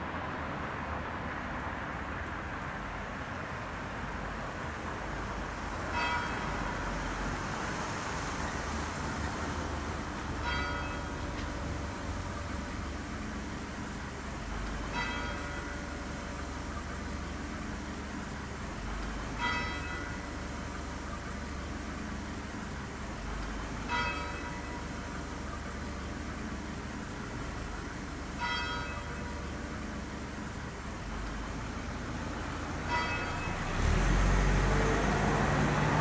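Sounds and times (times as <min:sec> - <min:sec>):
bell ringing: 0:10.4 - 0:13.5, 0:19.4 - 0:20.6, 0:23.8 - 0:24.9, 0:28.4 - 0:29.5, 0:32.9 - 0:33.8.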